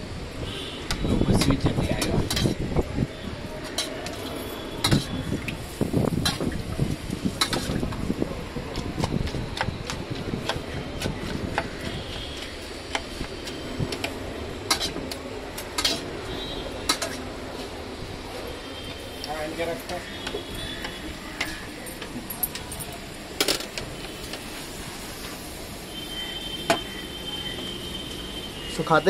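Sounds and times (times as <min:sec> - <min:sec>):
spoon clinking and scraping pots: 0:03.7 - 0:05.2, 0:13.9 - 0:15.1, 0:15.8 - 0:16.1, 0:16.8 - 0:17.2.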